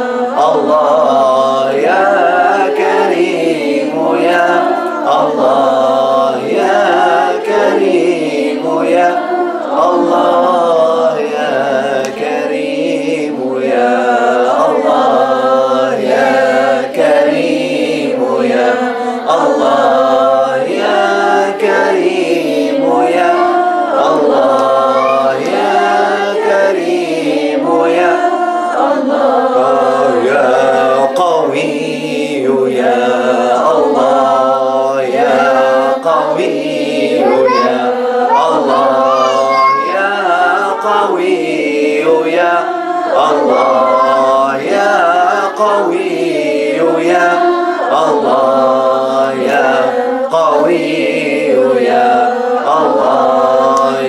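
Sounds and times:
group chanting together: 0:00.0 - 0:54.0.

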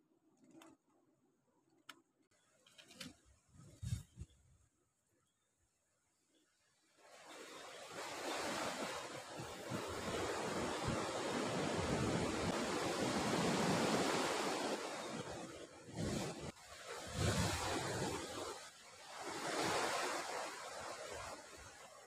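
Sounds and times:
wind on microphone: 0:03.6 - 0:04.5, 0:08.1 - 0:16.5
ocean surf breaking: 0:07.1 - 0:21.6.

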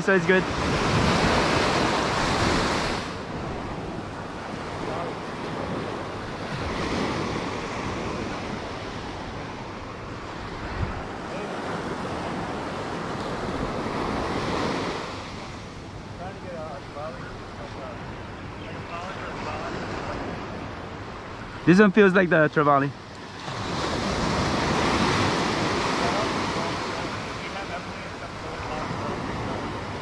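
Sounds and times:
small waves washing on sand: 0:00.0 - 0:30.0.

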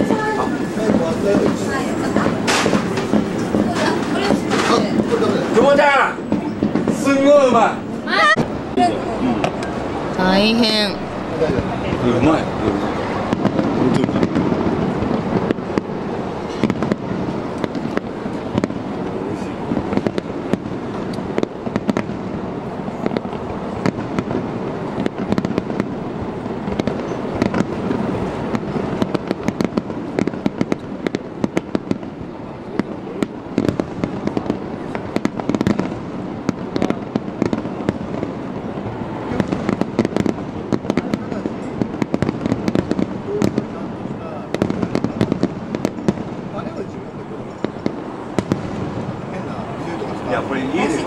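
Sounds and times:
fireworks crackling: 0:00.0 - 0:51.0.

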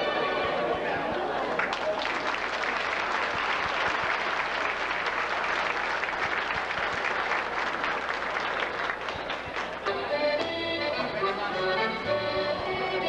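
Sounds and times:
crowd applauding: 0:01.1 - 0:09.9.

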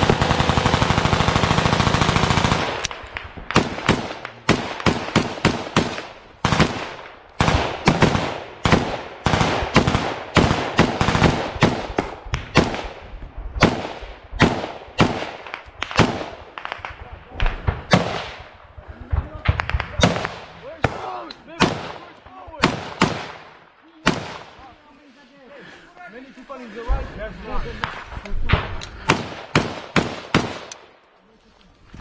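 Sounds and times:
automatic gunfire burst: 0:00.0 - 0:02.8
single gunshots: 0:13.6 - 0:18.5, 0:19.4 - 0:24.6.

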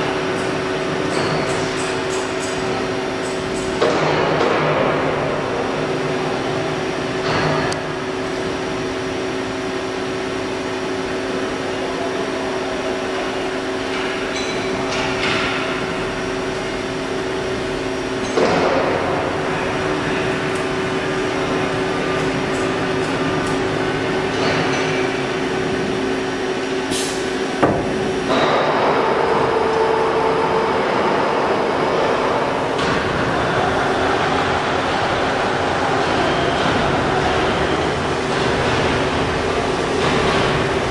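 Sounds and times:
sharp mechanical knocks and clanks: 0:00.3 - 0:05.4, 0:13.9 - 0:16.2, 0:18.2 - 0:19.4, 0:24.3 - 0:25.6, 0:27.1 - 0:29.8
drilling machine humming: 0:16.6 - 0:40.9.

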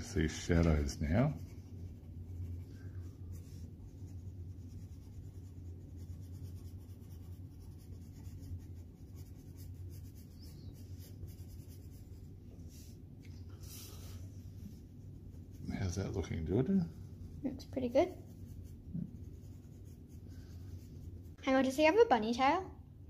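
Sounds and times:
steady low hum: 0:00.0 - 0:23.0
pencil scratching on paper: 0:01.2 - 0:12.4, 0:14.6 - 0:21.4.

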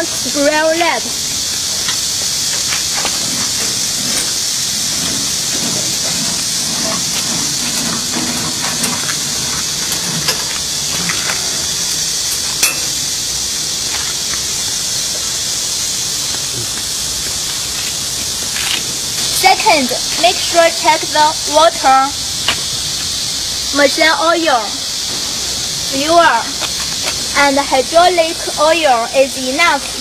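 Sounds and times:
high-pitched hiss: 0:00.0 - 0:30.0.

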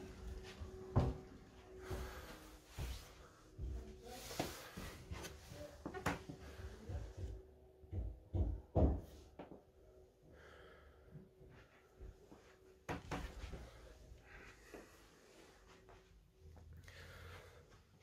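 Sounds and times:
soft low thumps of footsteps: 0:00.0 - 0:08.6.

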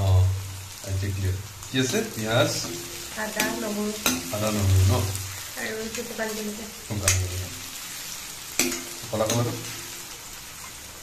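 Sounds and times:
onions sizzling in oil: 0:00.0 - 0:11.0
metal spoon scraping and knocking pan: 0:08.6 - 0:09.8.

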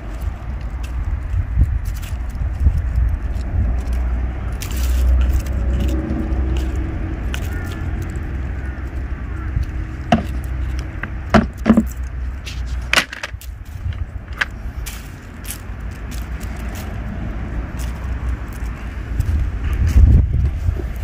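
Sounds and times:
steady low rumble: 0:00.0 - 0:21.0
plastic trays clacking: 0:11.3 - 0:11.9, 0:12.9 - 0:13.4.

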